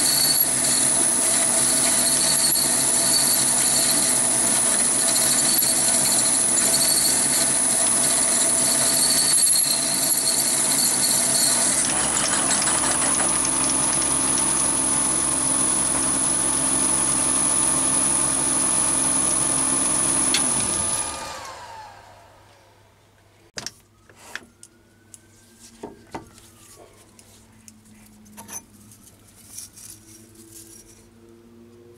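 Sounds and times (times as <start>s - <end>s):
drill cutting metal: 0.0s - 21.5s
motor winding down: 0.0s - 22.5s
lathe motor whine: 0.0s - 22.7s.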